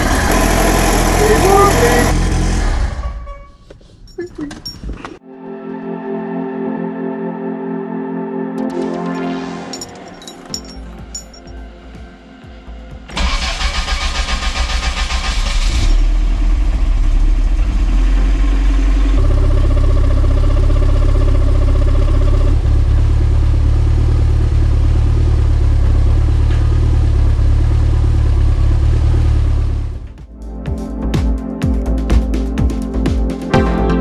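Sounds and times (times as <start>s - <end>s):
car engine running: 0.0s - 2.8s, 8.7s - 33.4s
thin high squeak: 3.0s - 5.0s.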